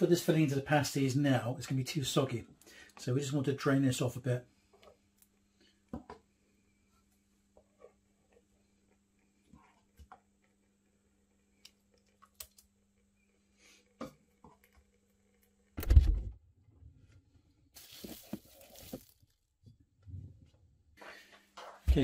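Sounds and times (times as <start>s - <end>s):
cling film rustling: 17.8s - 19.5s.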